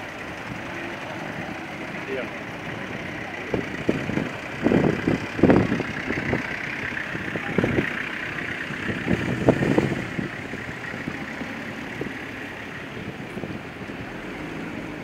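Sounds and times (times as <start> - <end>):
cars driving slowly past: 0.0 - 15.0.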